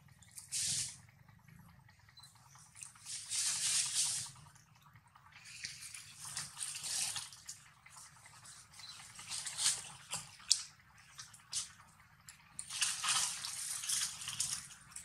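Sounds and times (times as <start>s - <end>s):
wet squishing and smacking: 5.3s - 15.0s.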